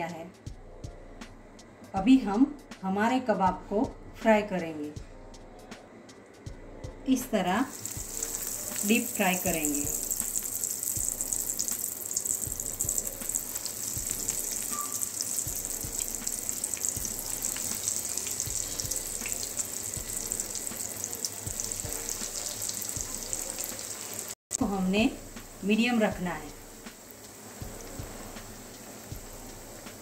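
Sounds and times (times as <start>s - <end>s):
hot oil sizzling and crackling: 7.6s - 30.0s.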